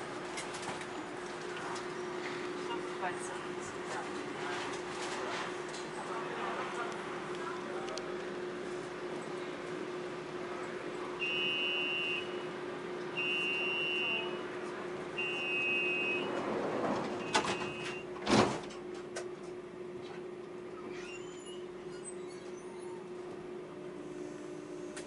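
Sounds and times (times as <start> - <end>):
high warning beeps: 11.2 - 12.5, 13.2 - 14.4, 15.2 - 16.3, 17.2 - 18.0
sliding doors shutting with thump: 16.2 - 19.5.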